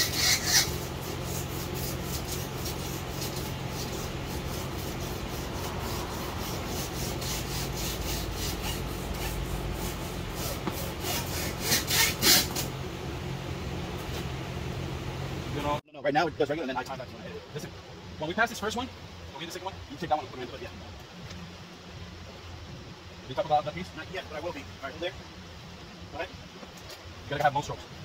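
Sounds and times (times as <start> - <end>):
wire sawing through windshield bead: 0.0 - 12.7
low hum: 0.0 - 23.3.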